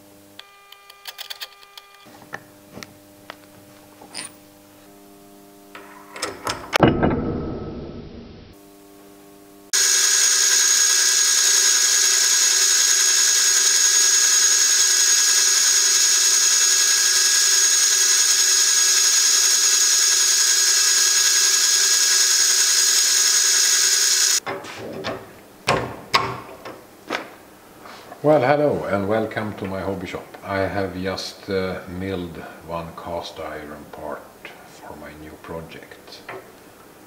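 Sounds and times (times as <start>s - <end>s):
milling machine cutting metal: 9.8s - 24.4s.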